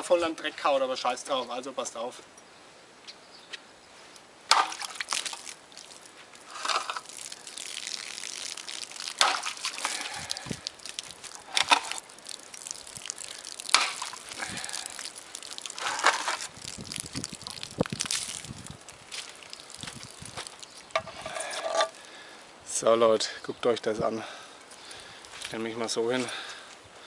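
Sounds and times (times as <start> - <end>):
tin can crinkling: 4.5 - 22.1
liquid splashing and dripping: 4.5 - 22.2.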